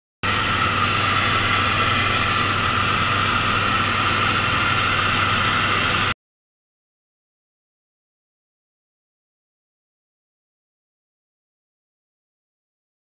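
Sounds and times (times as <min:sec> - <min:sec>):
low hum: 0:00.2 - 0:06.2
propeller aircraft cabin drone: 0:00.2 - 0:06.2.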